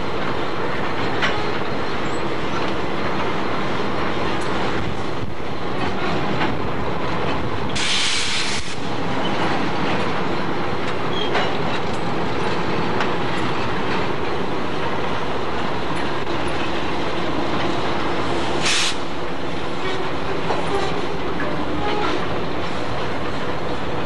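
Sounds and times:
wheels clicking over rail joints: 0:00.0 - 0:07.8, 0:08.7 - 0:18.7, 0:19.5 - 0:24.0
diesel locomotive engine drone: 0:00.0 - 0:24.0
short hiss: 0:07.8 - 0:08.8, 0:18.6 - 0:19.0.

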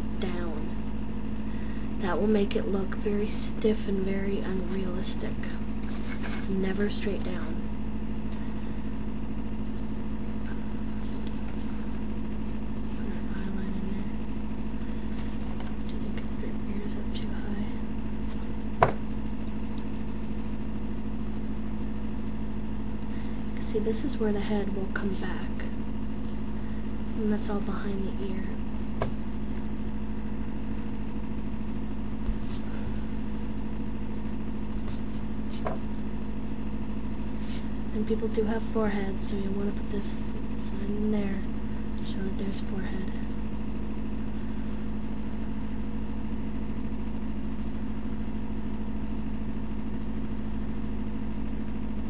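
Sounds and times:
low electrical hum: 0:00.0 - 0:52.0
pencil scratching on paper: 0:09.6 - 0:14.4, 0:19.6 - 0:23.7, 0:32.2 - 0:33.2, 0:34.8 - 0:37.7.

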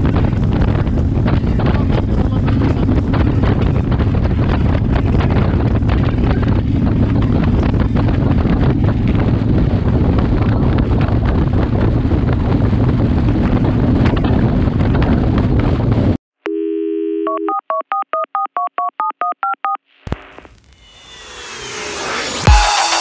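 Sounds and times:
motorcycle engine rumble: 0:00.0 - 0:16.1
wind buffeting microphone: 0:00.0 - 0:16.2
telephone dial tone: 0:16.5 - 0:19.8
touch-tone dialing beeps: 0:16.5 - 0:19.8.

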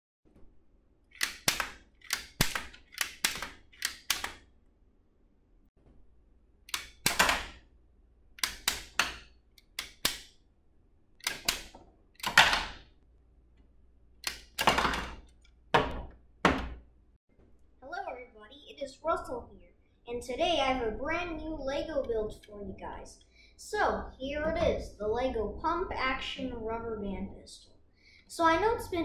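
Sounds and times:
toy pistol plastic clicks: 0:01.1 - 0:04.4, 0:06.7 - 0:07.5, 0:08.4 - 0:10.3, 0:11.2 - 0:12.4.

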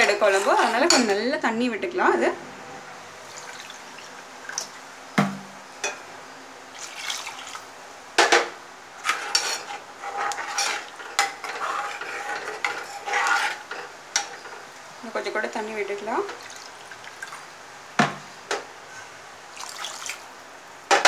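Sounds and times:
water pouring: 0:03.2 - 0:04.8, 0:06.7 - 0:07.7, 0:16.3 - 0:17.4, 0:19.5 - 0:20.3
ladle scraping metal pan: 0:09.0 - 0:14.6.

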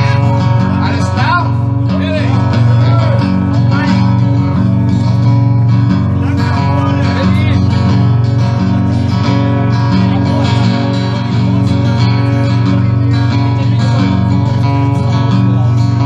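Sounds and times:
acoustic guitar strumming chords: 0:00.0 - 0:16.0.

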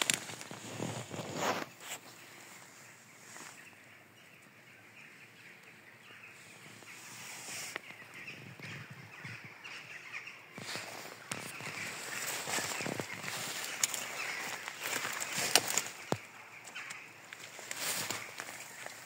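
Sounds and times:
dry leaves rustling: 0:00.0 - 0:03.9, 0:10.5 - 0:19.0.

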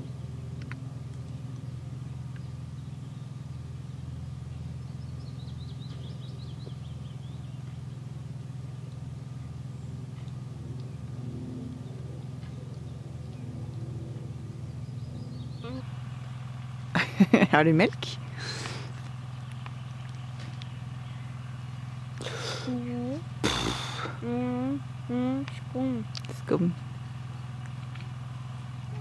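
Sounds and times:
low pulsing machine hum: 0:00.0 - 0:29.0
bird trilling call: 0:15.3 - 0:15.9.

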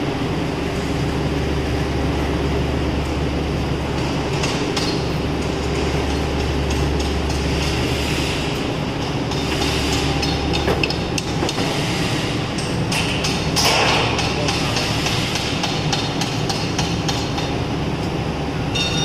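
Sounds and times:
low machine hum: 0:00.0 - 0:19.0
panel rattling over roller conveyor: 0:02.5 - 0:18.4
sharp clicks and knocks: 0:03.9 - 0:07.8, 0:08.9 - 0:11.8, 0:12.5 - 0:18.2.

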